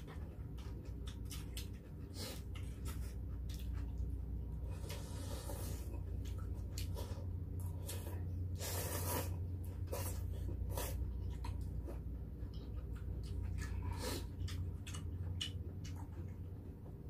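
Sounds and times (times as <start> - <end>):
low hum: 0.0 - 17.0
slurping noodles and broth: 4.8 - 5.9, 8.6 - 11.0.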